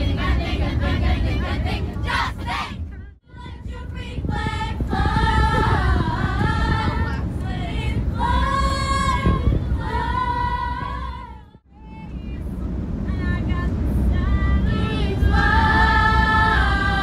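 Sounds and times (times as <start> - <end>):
bus rumbling on road: 0.0 - 17.0
children singing in unison: 14.7 - 17.0.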